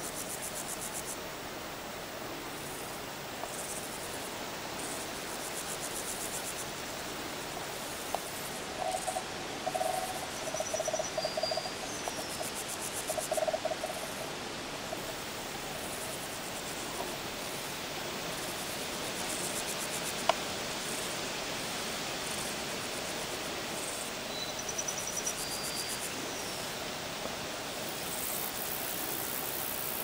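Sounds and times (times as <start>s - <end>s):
steady hiss: 0.0s - 30.0s
lower rapid pulsed calls: 8.3s - 14.4s
high pulsed chirping: 8.5s - 14.3s.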